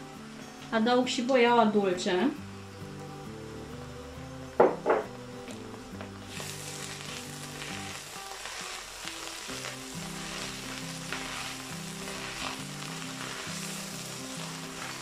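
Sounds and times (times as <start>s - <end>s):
cabbage sizzling in oil: 5.0s - 15.0s.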